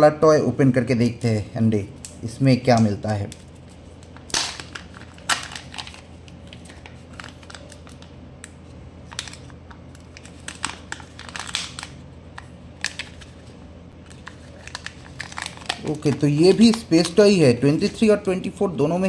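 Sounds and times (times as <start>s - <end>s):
foil seal crinkling: 3.3s - 8.1s, 9.0s - 18.0s
plastic capsule handled: 9.1s - 17.2s.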